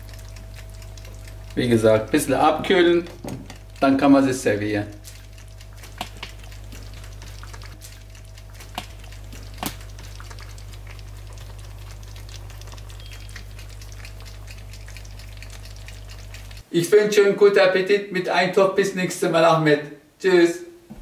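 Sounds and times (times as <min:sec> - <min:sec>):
steady low hum: 0:00.0 - 0:16.6
bubbles popping: 0:00.0 - 0:16.7
stew crackling in a pan: 0:00.0 - 0:16.7.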